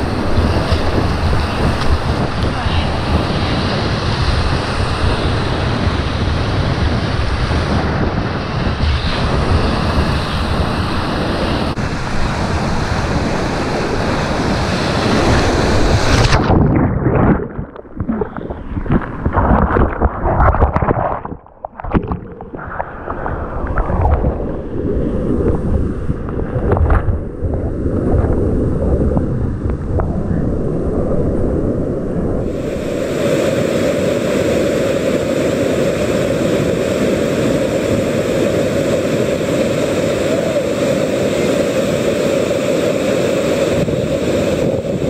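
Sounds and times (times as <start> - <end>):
water splashing over microphone: 8.6 - 45.0
whitewater rushing and splashing: 8.8 - 26.9, 32.4 - 45.0.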